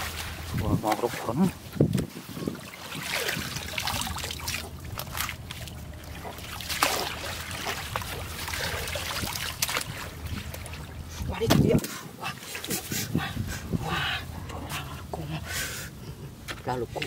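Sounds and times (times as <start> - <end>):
water draining through basket: 0.0 - 11.8
muddy water splashing: 0.0 - 16.0.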